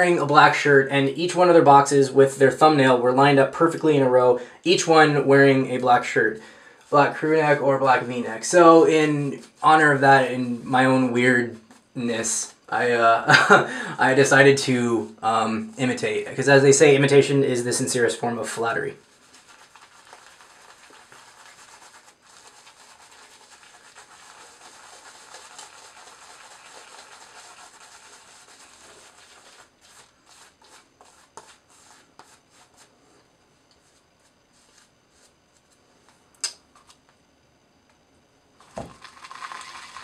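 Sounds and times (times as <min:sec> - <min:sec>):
shaving brush scrubbing lather: 0:18.7 - 0:32.9.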